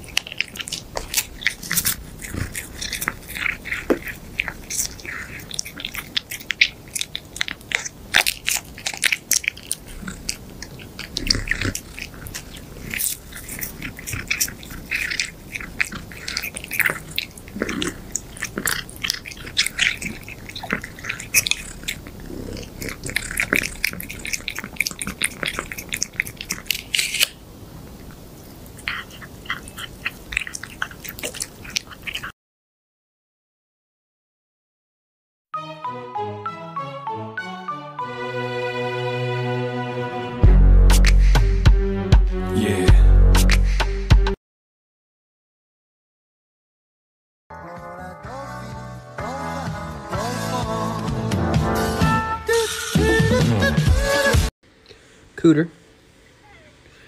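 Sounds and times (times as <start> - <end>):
cat chewing and smacking: 0.0 - 32.3.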